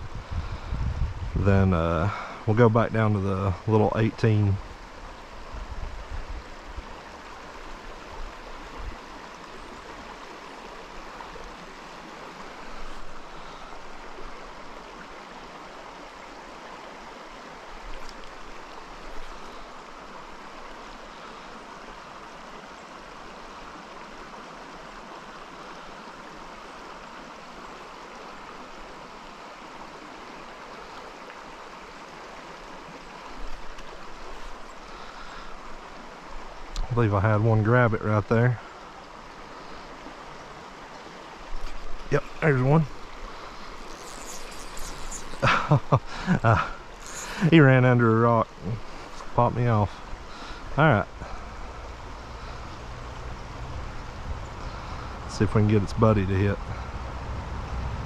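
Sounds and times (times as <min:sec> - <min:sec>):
stream water running: 0:00.0 - 0:58.0
faint clicks: 0:18.0 - 0:18.4, 0:33.4 - 0:33.9.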